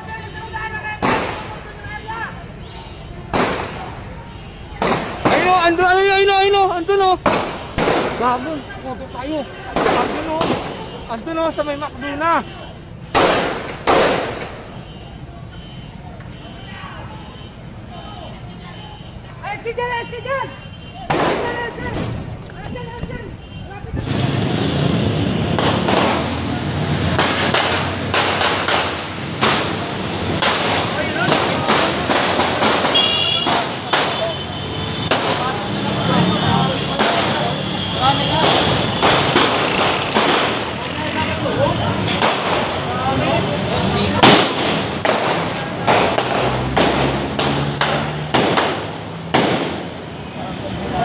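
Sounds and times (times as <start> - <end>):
street noise: 0.0 - 51.0
gunshots: 1.0 - 1.6, 3.3 - 4.0, 4.8 - 11.8, 13.1 - 14.7, 21.1 - 22.2, 27.1 - 34.3, 38.4 - 40.8, 42.2 - 42.8, 44.2 - 50.0
gunshots with echo: 7.2 - 8.6, 13.1 - 14.6, 21.1 - 22.0, 44.2 - 50.0.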